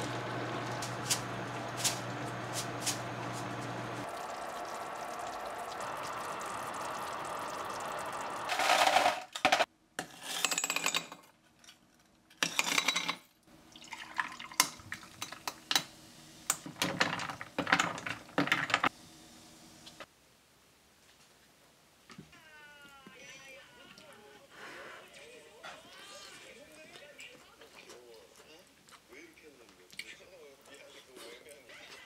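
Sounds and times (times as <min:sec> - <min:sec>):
fizzy drink poured and crackling: 0:00.0 - 0:09.1, 0:13.7 - 0:15.6
pan sizzling: 0:00.0 - 0:09.6
ice cubes clattering into a glass: 0:08.5 - 0:09.7.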